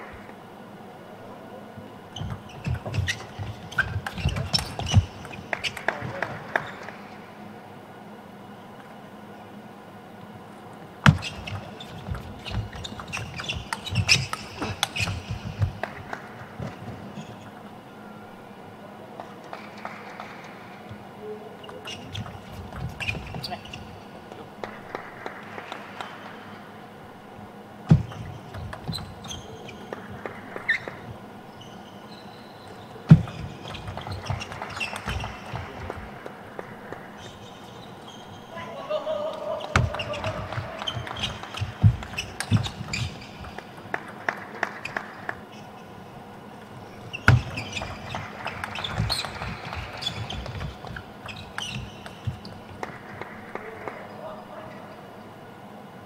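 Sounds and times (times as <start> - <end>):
shoes squeaking on floor: 2.1 - 7.0, 11.0 - 17.7, 19.5 - 26.5, 27.9 - 54.1.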